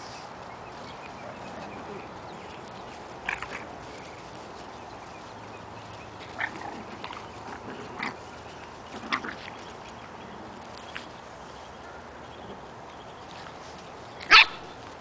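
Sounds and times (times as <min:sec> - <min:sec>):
puppies yipping and squealing: 0:06.1 - 0:09.8, 0:14.2 - 0:14.7.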